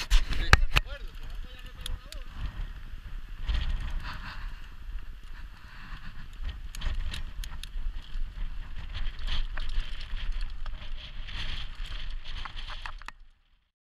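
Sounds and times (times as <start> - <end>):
wind rumbling on microphone: 0.0 - 13.6
sharp clicks and rattles: 0.1 - 2.4, 5.2 - 13.3.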